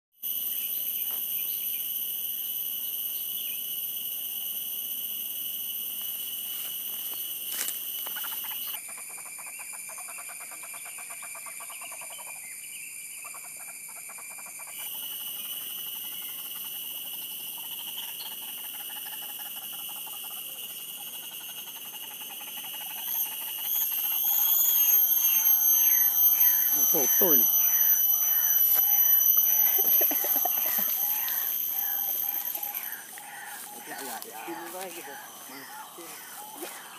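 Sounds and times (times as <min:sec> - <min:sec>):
insect chorus whining: 0:00.2 - 0:36.9
wavering high calls: 0:14.4 - 0:36.9.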